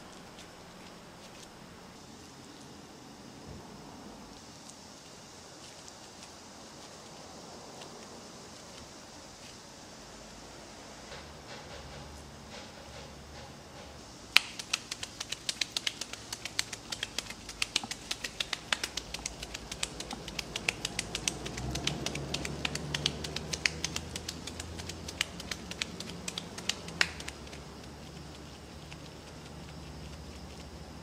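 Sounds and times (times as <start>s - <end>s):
hands slapping meat patty: 14.3s - 27.7s.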